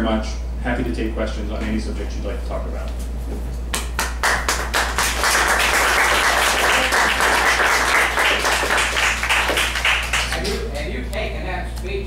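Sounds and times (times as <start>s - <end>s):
audience applauding: 3.8s - 10.7s.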